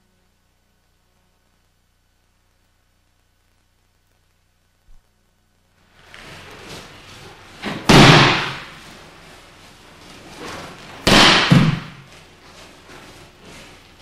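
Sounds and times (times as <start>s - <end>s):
body slapping onto mat: 7.6s - 9.0s, 10.3s - 12.2s.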